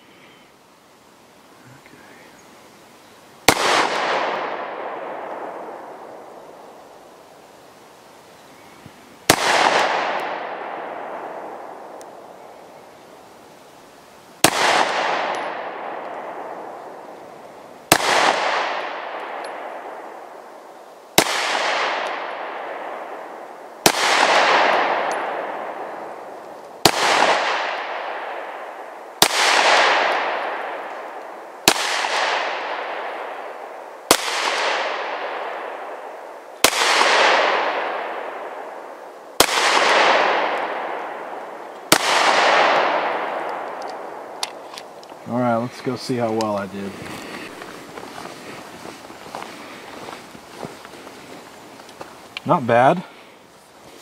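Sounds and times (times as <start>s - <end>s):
pistol shots with echo: 3.5s - 6.3s, 9.3s - 12.0s, 14.4s - 17.1s, 17.9s - 20.2s, 21.2s - 44.6s.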